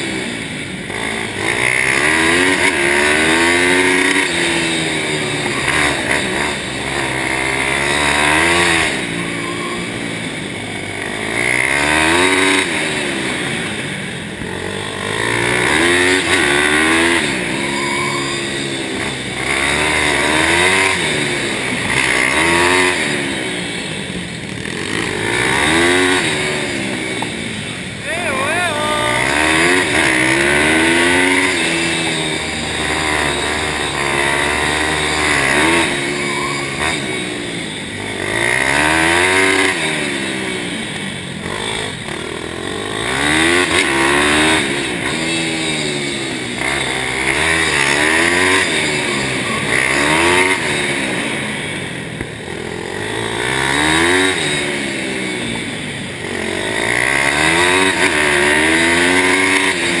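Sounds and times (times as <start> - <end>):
motorbike engine revving: 0.0 - 60.0.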